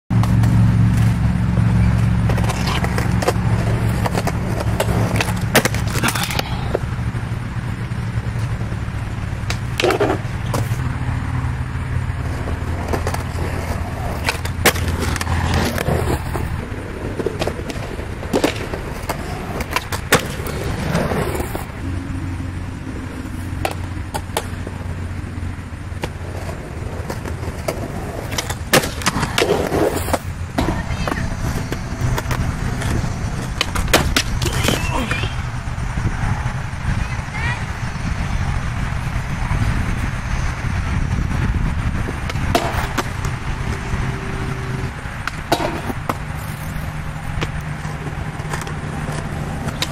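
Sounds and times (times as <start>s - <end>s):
skateboard clacks: 0.1s - 10.9s, 12.2s - 21.7s, 23.0s - 35.5s, 41.9s - 43.9s, 45.1s - 49.9s
skateboard wheels rolling on concrete: 0.1s - 49.9s.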